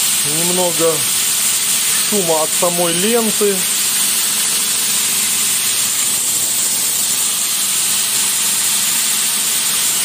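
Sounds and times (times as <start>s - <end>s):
abrasive belt hissing: 0.0s - 10.0s.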